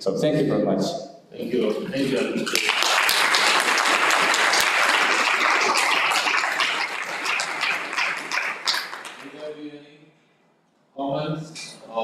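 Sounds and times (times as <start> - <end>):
audience applauding: 1.9 - 9.6.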